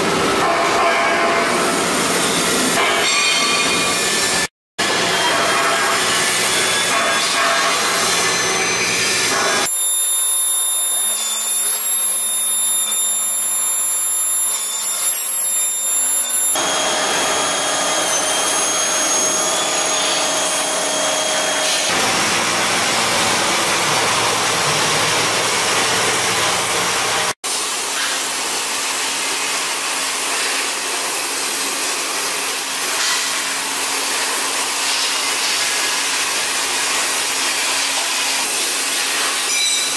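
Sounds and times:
torch cutting steel plate: 0:01.6 - 0:28.6
machine drilling into steel: 0:02.1 - 0:27.4.

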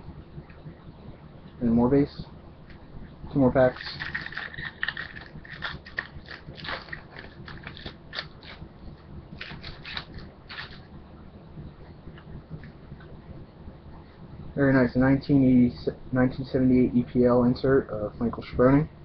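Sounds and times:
foil wrapper crinkling: 0:03.6 - 0:08.6, 0:09.4 - 0:10.9.

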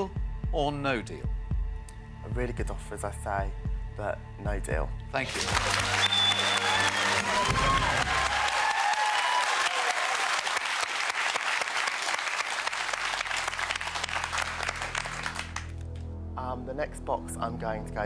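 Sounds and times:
people cheering: 0:05.2 - 0:15.6
audience applauding: 0:05.2 - 0:16.0.

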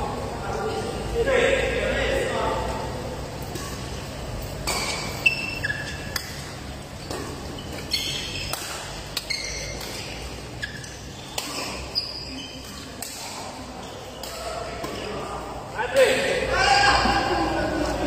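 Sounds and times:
rackets striking shuttlecock: 0:03.4 - 0:11.9
shoes squeaking on court: 0:03.4 - 0:15.2.

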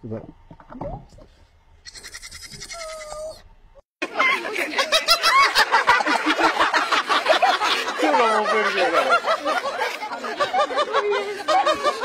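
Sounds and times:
people laughing hard: 0:04.0 - 0:12.0.

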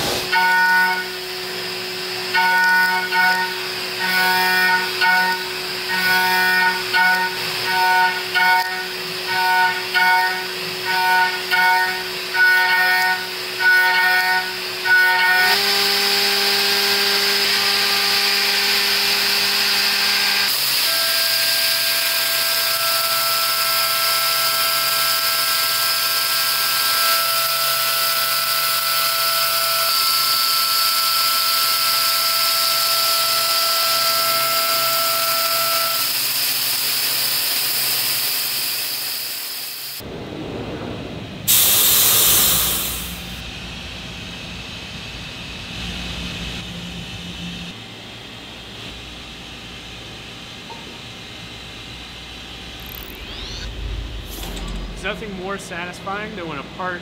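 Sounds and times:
loud rushing noise: 0:40.0 - 0:43.5, 0:52.6 - 0:56.8
coolant spray hiss: 0:41.5 - 0:43.4
mill cutting whine: 0:42.7 - 0:57.0.

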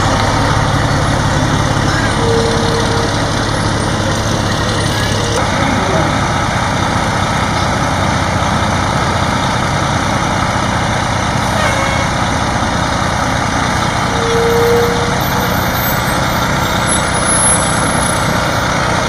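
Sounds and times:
diesel truck engine running: 0:00.0 - 0:19.0
short squeal: 0:01.9 - 0:05.4, 0:13.8 - 0:18.6.

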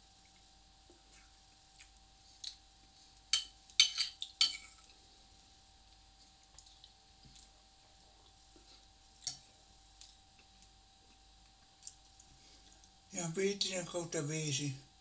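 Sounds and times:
fork clinking on ceramic plate: 0:03.3 - 0:04.8.

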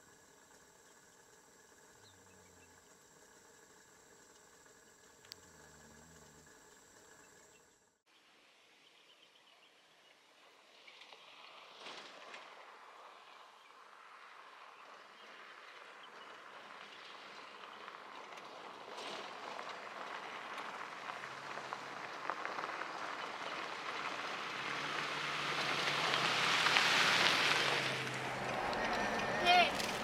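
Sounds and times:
low engine hum: 0:00.0 - 0:08.0, 0:14.7 - 0:30.0
tyres crunching on gravel: 0:16.8 - 0:30.0.

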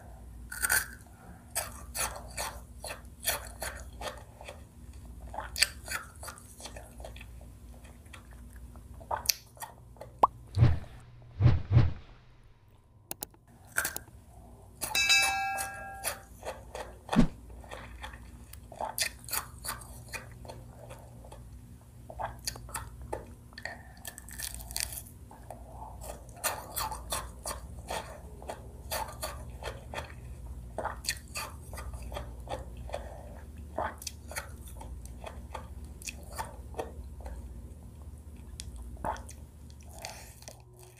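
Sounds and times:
biting and chewing: 0:00.5 - 0:10.3, 0:16.0 - 0:21.5, 0:22.1 - 0:37.4
brief ringing chime: 0:15.0 - 0:16.2.

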